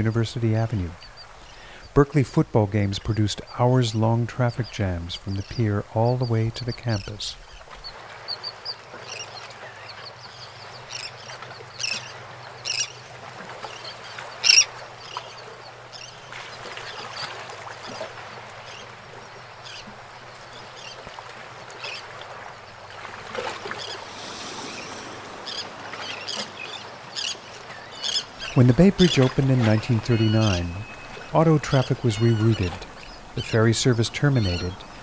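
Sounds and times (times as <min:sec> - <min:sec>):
gulls squawking: 0:23.6 - 0:35.0.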